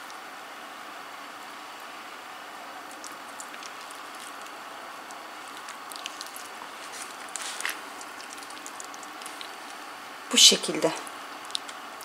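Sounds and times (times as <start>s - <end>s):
wet squishes of raw chicken: 2.8s - 10.0s.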